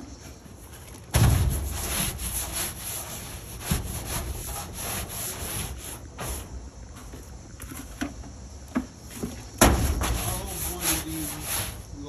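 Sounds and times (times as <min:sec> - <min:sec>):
rough scraping strokes: 0:00.1 - 0:06.6, 0:09.7 - 0:12.0.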